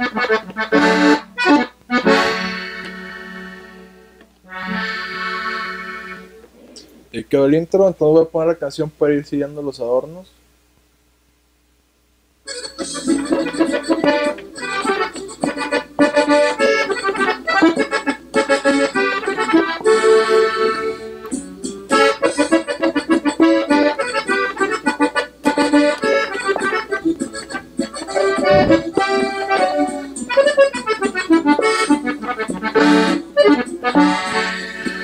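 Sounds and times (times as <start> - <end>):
button accordion melody: 0.0 - 6.4, 12.5 - 35.0
low thump: 28.4 - 29.2.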